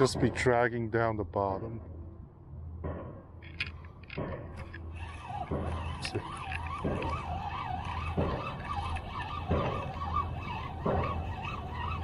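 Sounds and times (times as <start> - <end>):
fishing reel gears whirring: 4.6 - 12.0.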